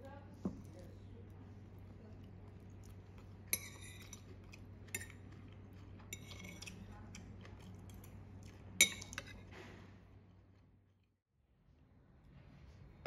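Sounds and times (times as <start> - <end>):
metal fork clinking on plate: 3.5 - 4.3, 8.8 - 9.4.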